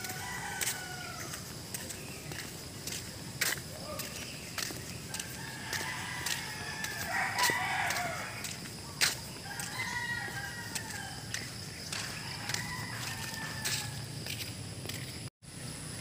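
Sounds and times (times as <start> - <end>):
rooster crowing: 0.0 - 1.5, 5.1 - 8.6, 9.4 - 14.4.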